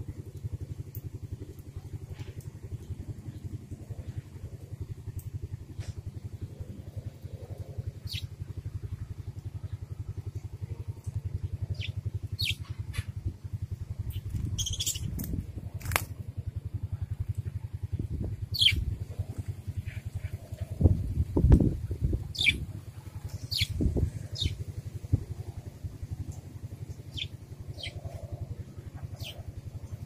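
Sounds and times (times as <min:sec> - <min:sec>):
engine humming: 0:00.0 - 0:30.0
budgerigars chirping: 0:11.8 - 0:12.6, 0:14.6 - 0:15.1, 0:18.6 - 0:18.8, 0:22.3 - 0:22.6, 0:23.3 - 0:23.7, 0:24.4 - 0:24.6, 0:27.1 - 0:28.1, 0:29.2 - 0:29.4.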